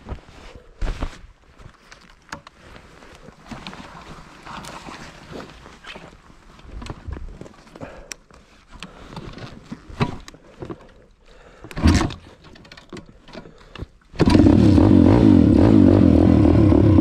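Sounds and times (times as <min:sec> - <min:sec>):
motorbike engine starting and idling: 0:14.2 - 0:17.0.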